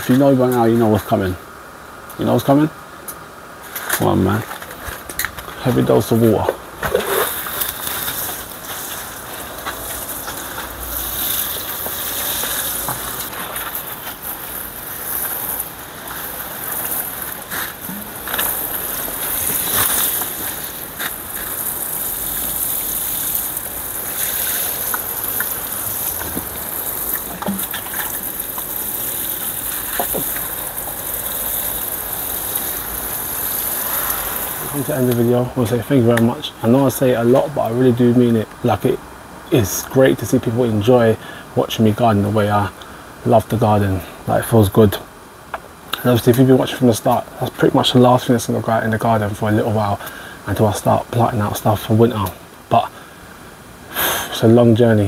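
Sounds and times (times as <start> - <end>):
water spraying onto plants: 5.6 - 38.2.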